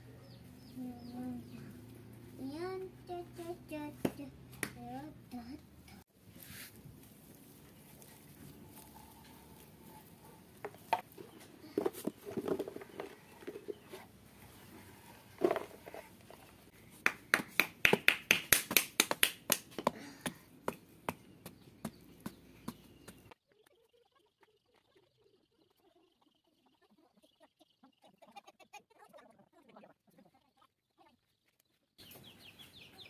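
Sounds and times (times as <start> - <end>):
soil rustling in hands: 6.1 - 16.8.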